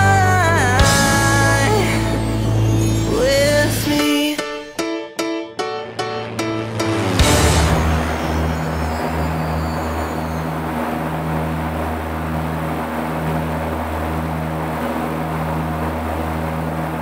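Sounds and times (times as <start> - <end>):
propeller engines droning: 5.7 - 17.0.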